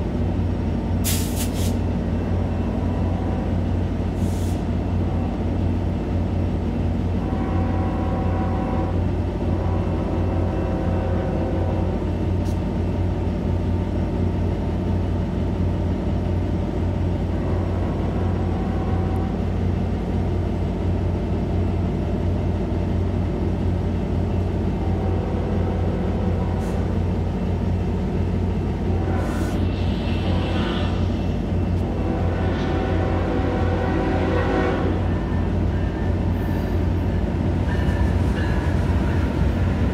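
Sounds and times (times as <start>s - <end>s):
diesel locomotive idling: 0.0s - 39.9s.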